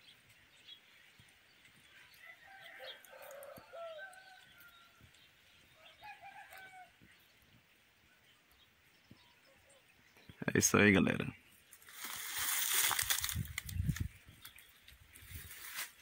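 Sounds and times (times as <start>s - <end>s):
rooster crowing: 2.2s - 5.1s, 5.8s - 7.0s.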